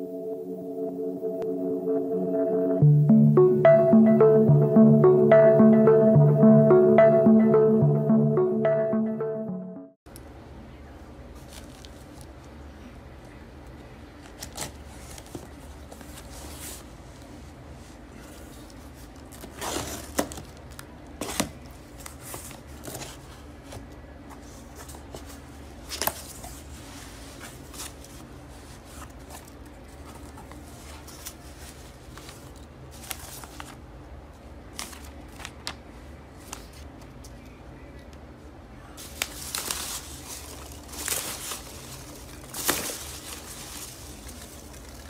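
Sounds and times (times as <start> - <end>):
paper rustling: 39.0 - 45.0.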